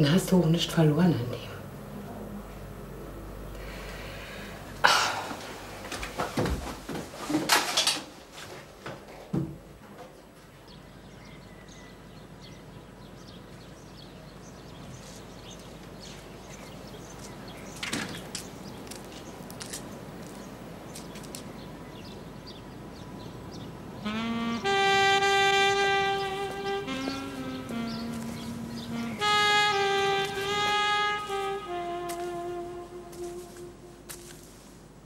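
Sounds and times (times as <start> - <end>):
faint steady hiss: 14.4 - 35.0
footsteps clicking: 17.1 - 21.5, 26.4 - 34.6
held musical note: 24.0 - 34.5.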